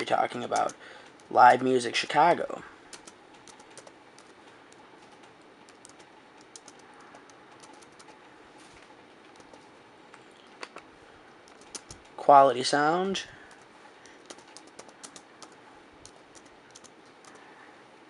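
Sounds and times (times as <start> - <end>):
sharp clicks: 0.5 - 0.8, 11.5 - 12.1
typing on a keyboard: 0.5 - 1.3, 2.9 - 4.4, 5.0 - 8.2, 11.5 - 12.1, 13.5 - 17.4.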